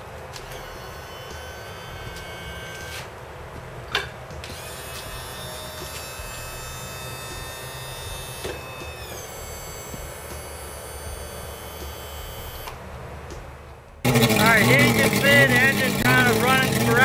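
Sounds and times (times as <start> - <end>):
outboard motor running rough: 4.5 - 12.7, 14.0 - 17.0.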